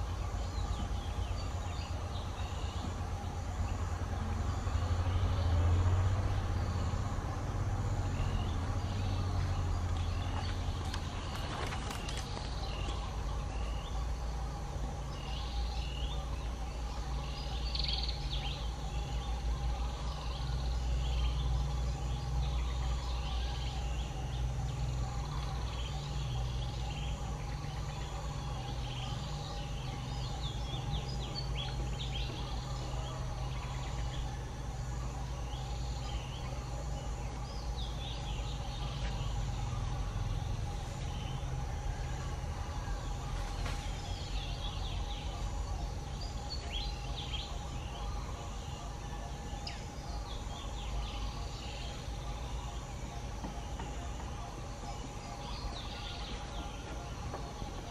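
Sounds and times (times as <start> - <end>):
birds chirping: 0.0 - 57.9.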